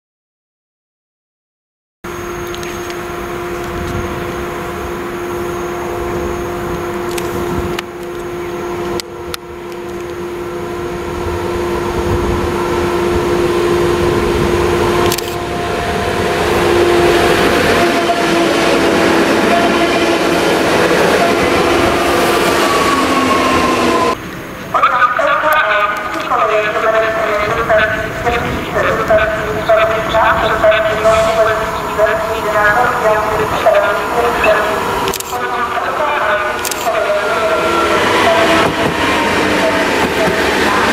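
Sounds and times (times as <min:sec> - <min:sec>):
wheel and rail noise: 0:02.1 - 0:24.8
electric train whine: 0:02.1 - 0:40.9
sharp clicks: 0:15.0 - 0:15.4, 0:35.1 - 0:35.4, 0:36.6 - 0:36.9.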